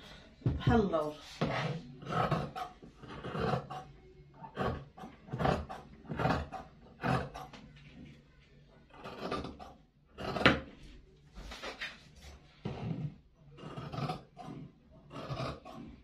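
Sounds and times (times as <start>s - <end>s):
shears cutting fabric: 9.0s - 9.6s, 10.2s - 10.7s, 12.7s - 15.9s.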